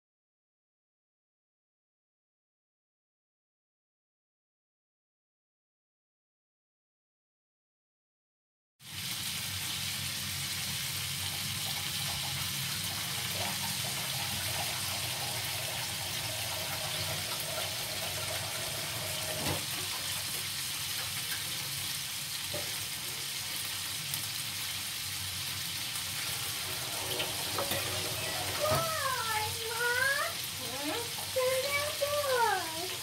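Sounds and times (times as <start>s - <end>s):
food sizzling in hot oil: 8.8s - 33.0s.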